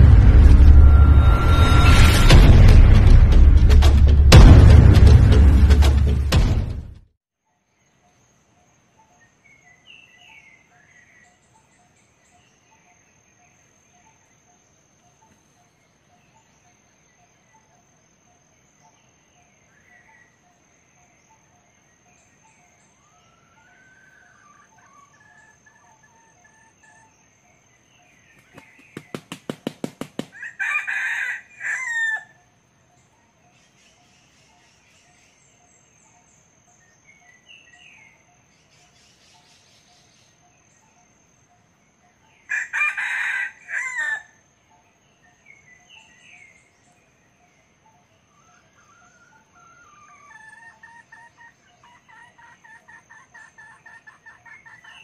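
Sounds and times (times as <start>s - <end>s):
rooster wings flapping: 28.3s - 30.6s
rooster crowing: 30.3s - 32.4s, 42.5s - 44.4s.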